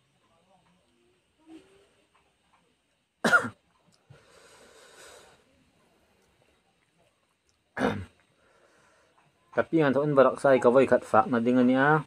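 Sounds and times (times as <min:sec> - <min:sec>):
soft breathy hiss: 0:00.0 - 0:12.0
man coughing: 0:03.2 - 0:03.6, 0:07.8 - 0:08.1.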